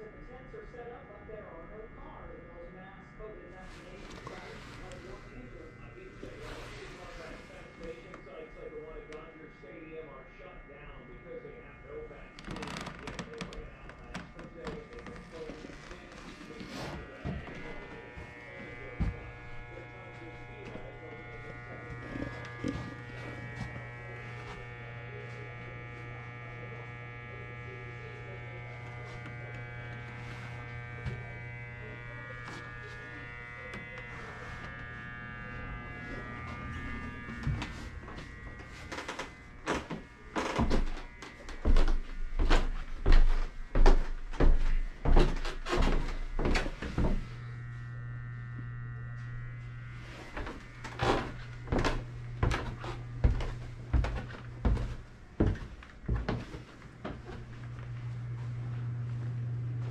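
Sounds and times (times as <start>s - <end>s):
electrical buzz: 0.0s - 59.9s
low hum: 0.0s - 59.9s
footsteps going down stairs: 19.0s - 19.6s, 37.3s - 47.3s, 50.3s - 59.2s.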